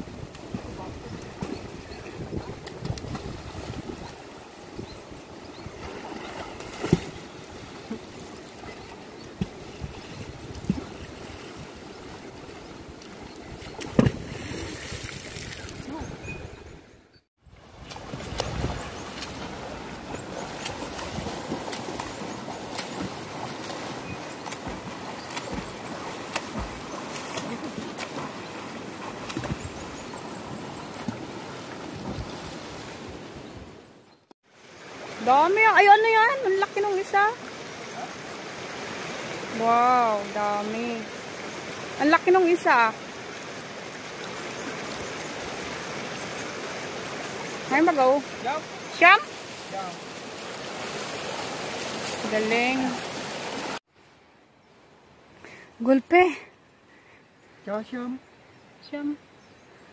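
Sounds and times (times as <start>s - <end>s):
river running over stones: 0.0s - 16.2s, 17.6s - 33.9s, 34.5s - 54.3s
distant splashing in water: 0.0s - 16.6s, 17.6s - 33.7s.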